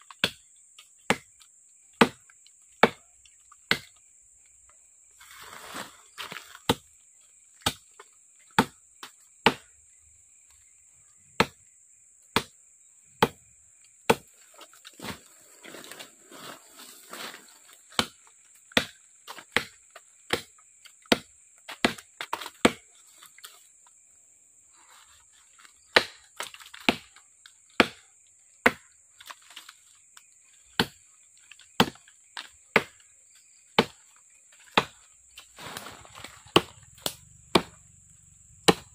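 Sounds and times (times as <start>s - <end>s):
machete chopping into wood: 0.1s - 0.5s, 1.1s - 1.4s, 2.0s - 3.1s, 3.7s - 4.0s, 6.2s - 6.9s, 7.6s - 8.0s, 8.6s - 9.7s, 11.4s - 11.6s, 12.3s - 12.6s, 13.2s - 13.4s, 14.1s - 15.2s, 17.9s - 22.9s, 25.8s - 27.2s, 27.8s - 28.0s, 28.6s - 29.6s, 30.8s - 31.0s, 31.6s - 33.0s, 33.8s - 34.0s, 34.6s - 35.0s, 35.6s - 37.8s, 38.6s - 38.9s.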